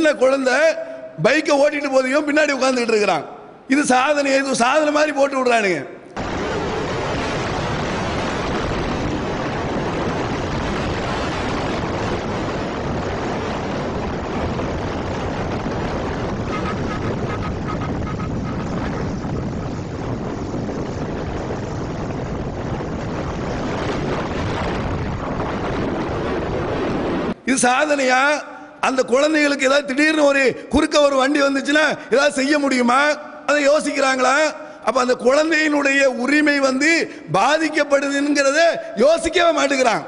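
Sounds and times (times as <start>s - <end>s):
wind buffeting microphone: 6.2s - 27.4s
road noise: 15.9s - 20.6s.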